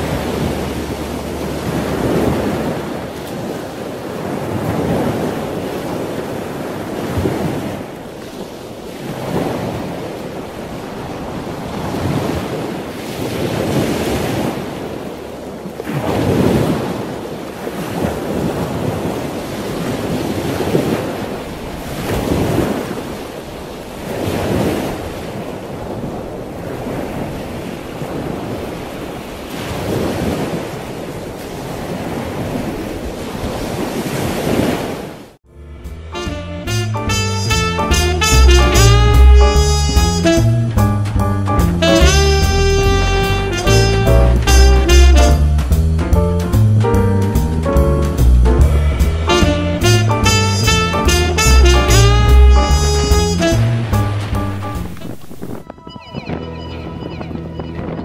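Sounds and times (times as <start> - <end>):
wind buffeting microphone: 0.0 - 35.1, 52.6 - 58.0
choppy water splashing: 0.0 - 35.4, 37.6 - 46.8, 47.4 - 56.4.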